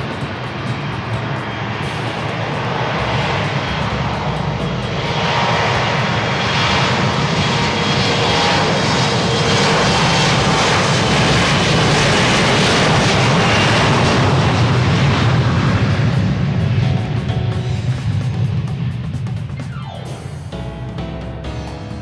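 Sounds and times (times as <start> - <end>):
jet engines roaring: 0.0 - 20.9.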